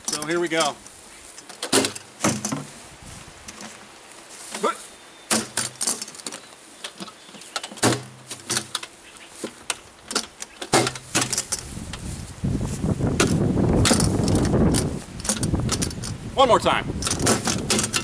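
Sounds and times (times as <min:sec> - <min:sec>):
metal box banging on ground: 0:01.6 - 0:02.7, 0:07.7 - 0:08.8, 0:10.1 - 0:11.5.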